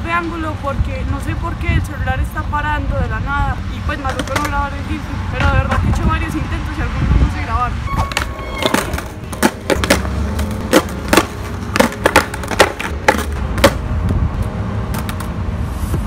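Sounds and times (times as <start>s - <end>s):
skateboard clacking on concrete: 4.0s - 4.6s, 8.1s - 13.8s
skateboard wheels rolling: 7.9s - 13.9s.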